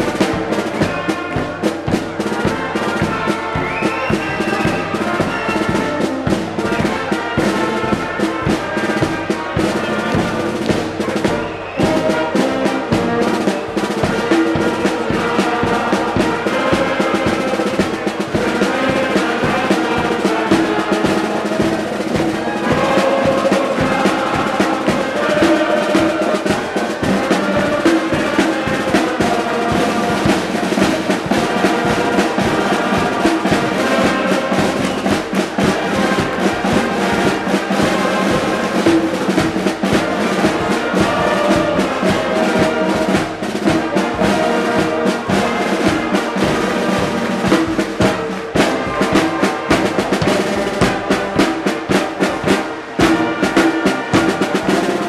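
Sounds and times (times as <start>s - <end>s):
brass band playing: 0.0s - 55.0s
steady drum beat: 0.0s - 55.0s.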